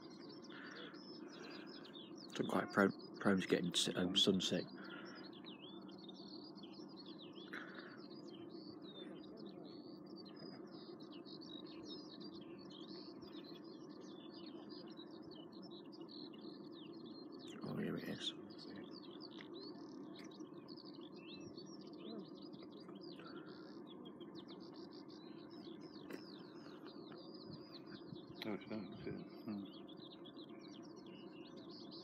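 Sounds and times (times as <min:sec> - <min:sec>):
birds chirping and trilling: 0:00.0 - 0:32.0.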